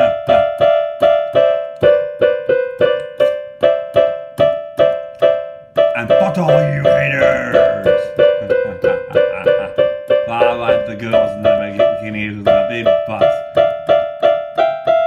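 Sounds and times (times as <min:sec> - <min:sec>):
man's wordless vocal: 0:00.0 - 0:00.6, 0:06.0 - 0:13.4
keyboard repeated notes: 0:00.0 - 0:15.0.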